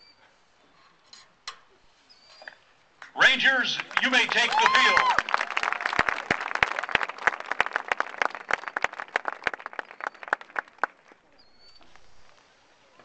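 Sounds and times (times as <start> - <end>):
crowd applause: 3.6 - 11.2.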